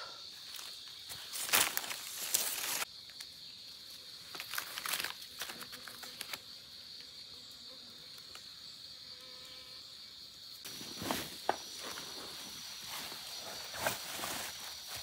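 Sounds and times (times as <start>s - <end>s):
forest insects droning: 0.0s - 15.0s
higher insect tone: 0.0s - 15.0s.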